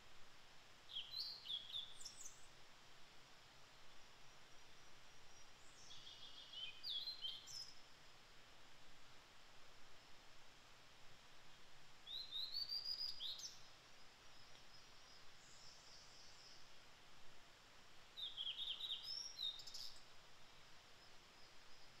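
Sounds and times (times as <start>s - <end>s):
bird singing whistled notes: 0.9s - 2.5s, 4.5s - 7.8s, 12.0s - 13.7s, 14.3s - 16.7s, 18.2s - 20.1s.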